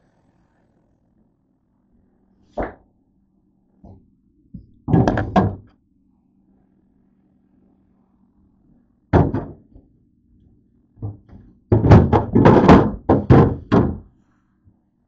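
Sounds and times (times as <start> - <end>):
faint low hum: 0.0 - 15.0
items thunking on fridge shelves: 4.6 - 5.7, 9.2 - 9.8, 11.0 - 14.1
knocks and thunks: 4.6 - 5.7, 9.1 - 9.8, 11.0 - 14.1.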